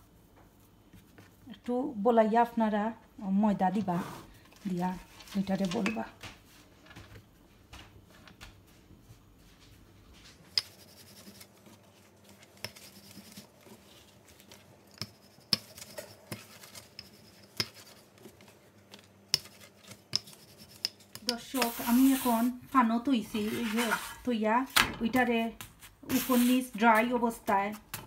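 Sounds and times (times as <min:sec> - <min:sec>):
rolling pin rubbing on dough: 0:10.5 - 0:18.6, 0:19.3 - 0:22.6.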